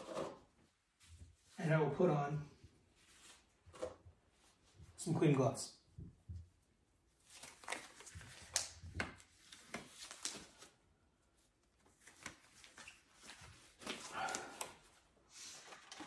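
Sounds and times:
rubber gloves rustling and crinkling: 7.1 - 16.0.

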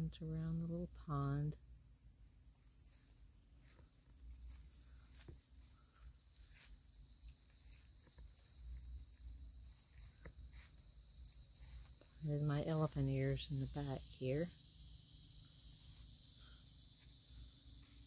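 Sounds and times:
insects chirring: 0.0 - 18.0
faint footsteps: 2.8 - 13.8.

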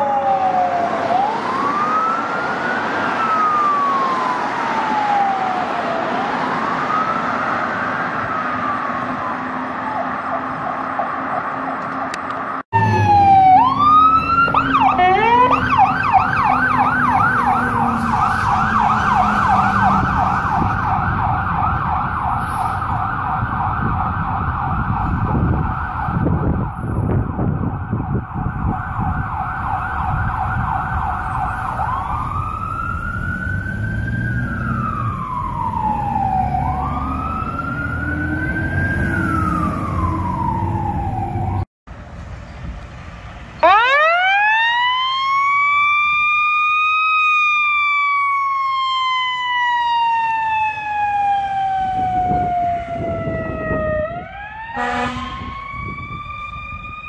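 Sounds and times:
fire truck siren: 0.0 - 41.7, 43.5 - 57.0
truck engine: 0.5 - 44.2.

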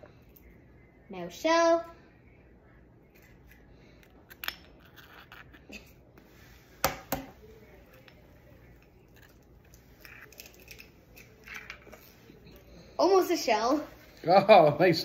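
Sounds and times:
eggs cracking on bowl: 3.1 - 5.7.

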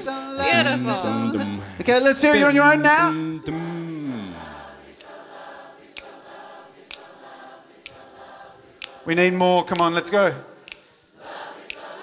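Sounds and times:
audience singing in harmony: 0.0 - 12.0
sharp beat clicks: 5.9 - 7.2, 7.8 - 10.9.

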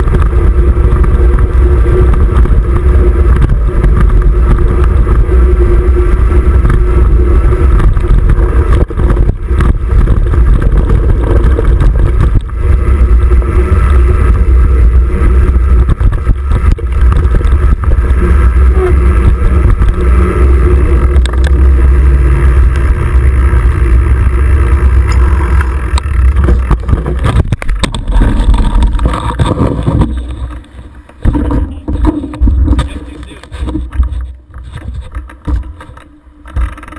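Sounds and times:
bike wheel knocking on curb: 0.0 - 22.0
wind buffeting: 0.0 - 35.8
bike rolling rumble on dirt: 0.0 - 36.9.

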